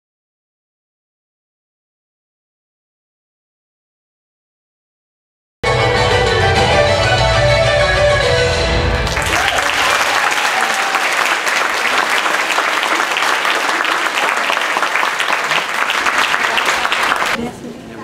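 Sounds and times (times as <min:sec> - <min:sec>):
audience applauding: 0:09.0 - 0:17.4.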